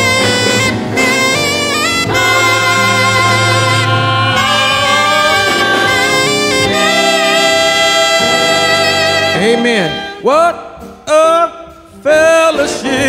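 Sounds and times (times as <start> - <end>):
steady bass note: 0.0 - 10.3
slow hymn with reedy tone: 0.0 - 10.5.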